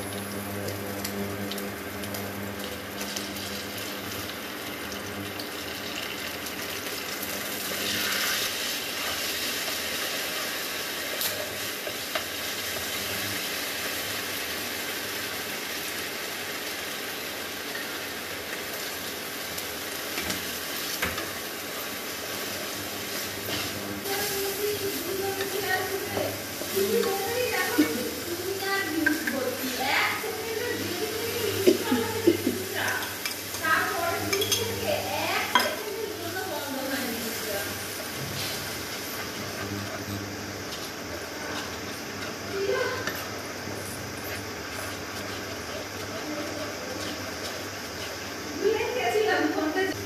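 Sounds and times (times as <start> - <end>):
food sizzling: 0.0 - 50.0
spatula scraping in pan: 20.2 - 49.6.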